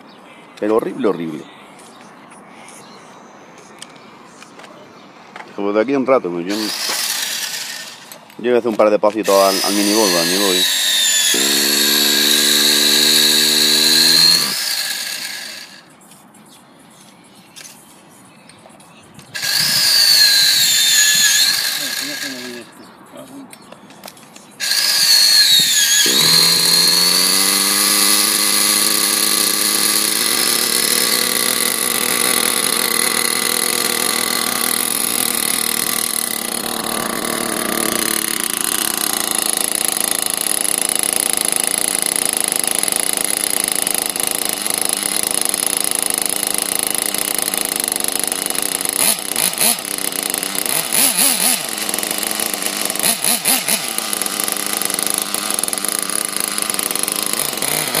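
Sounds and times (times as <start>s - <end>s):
high-pitched buzzy model engine: 6.5s - 8.2s, 9.2s - 15.9s, 19.3s - 22.8s, 24.6s - 58.0s.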